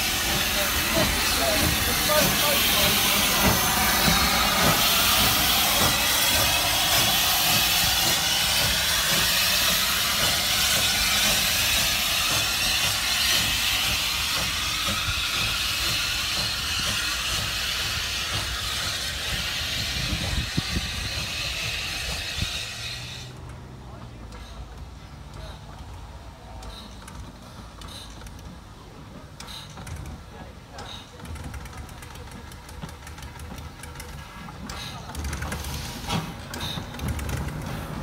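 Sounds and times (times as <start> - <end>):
steam hissing: 0.0 - 23.4, 31.4 - 38.0.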